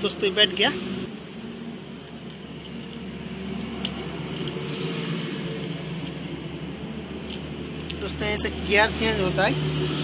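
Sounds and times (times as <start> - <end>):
low mechanical hum: 0.0 - 9.1
gearshift metallic clicks: 7.2 - 8.2.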